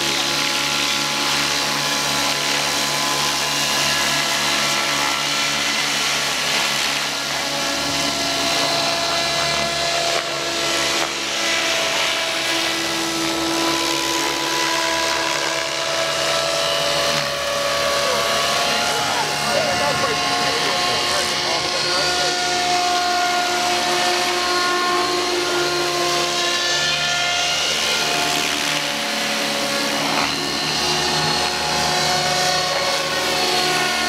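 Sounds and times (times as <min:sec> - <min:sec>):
model helicopter engine whine: 0:00.0 - 0:34.0.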